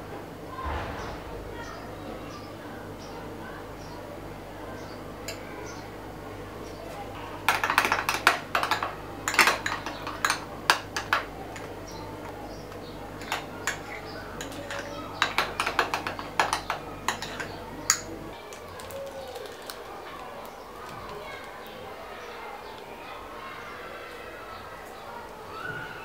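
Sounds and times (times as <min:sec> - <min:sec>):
spoon clinking against bowl: 0:07.5 - 0:11.7, 0:13.2 - 0:18.1.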